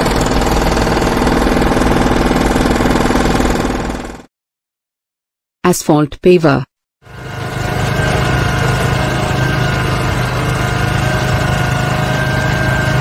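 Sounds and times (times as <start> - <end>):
heavy machine engine running: 0.0 - 4.3, 7.0 - 13.0.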